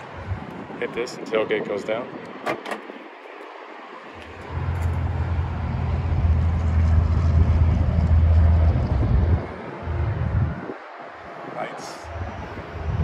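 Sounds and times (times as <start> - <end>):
highway traffic rumble: 0.0 - 13.0.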